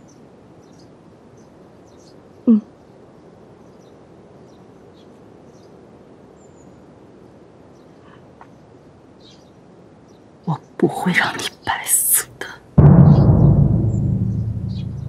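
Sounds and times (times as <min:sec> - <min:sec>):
faint outdoor ambience: 0:00.0 - 0:15.0.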